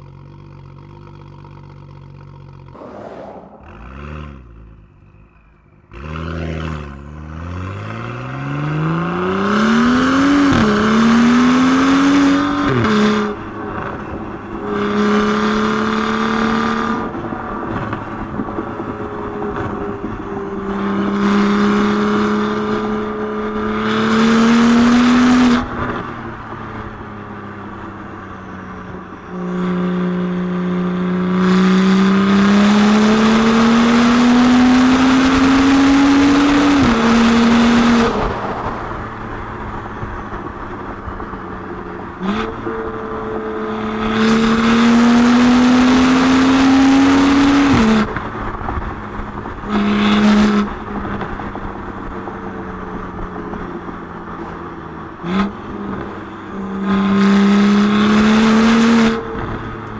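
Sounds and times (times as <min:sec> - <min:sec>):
car engine accelerating: 0:00.0 - 0:59.9.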